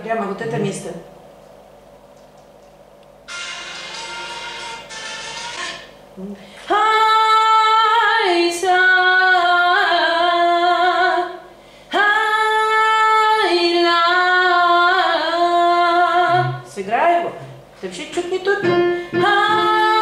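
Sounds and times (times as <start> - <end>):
person singing: 16.3 - 16.6.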